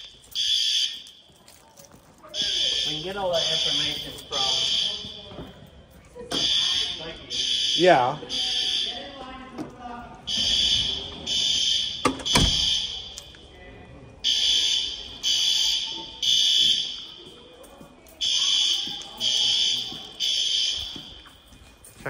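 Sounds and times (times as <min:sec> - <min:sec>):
fire alarm horn blasts: 0:00.3 - 0:01.2, 0:02.4 - 0:05.3, 0:06.4 - 0:09.2, 0:10.3 - 0:13.2, 0:14.2 - 0:17.2, 0:18.2 - 0:21.2
door clunking shut: 0:12.0 - 0:12.7.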